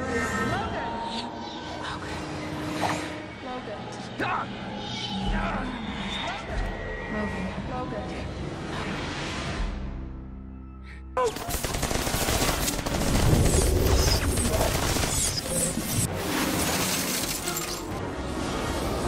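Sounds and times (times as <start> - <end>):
debris crashing and shattering: 11.4 - 18.0.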